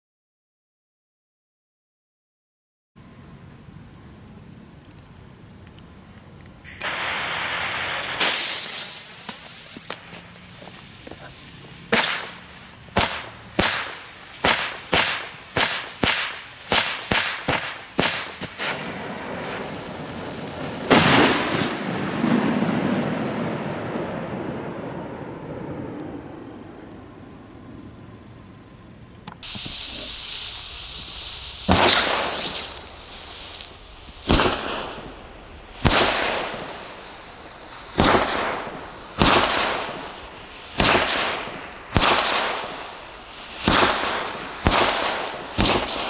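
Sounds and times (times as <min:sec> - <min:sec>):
firecracker fuse hiss: 0:06.6 - 0:22.4, 0:29.2 - 0:46.0
firecracker bang: 0:06.6 - 0:27.0, 0:31.6 - 0:32.8, 0:34.2 - 0:35.2, 0:37.9 - 0:42.8.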